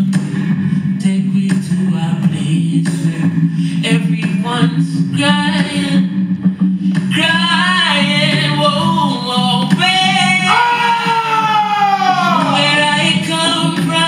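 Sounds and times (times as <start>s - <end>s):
steady low drone: 0.0s - 10.6s
person singing long sliding notes: 7.1s - 14.0s.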